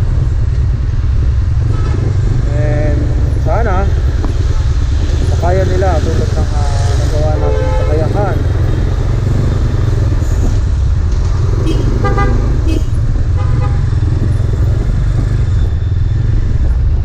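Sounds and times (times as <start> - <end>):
motorcycle and traffic rumble: 0.0 - 17.0
vehicle horn toots: 1.7 - 2.1, 7.3 - 8.2, 11.6 - 13.9.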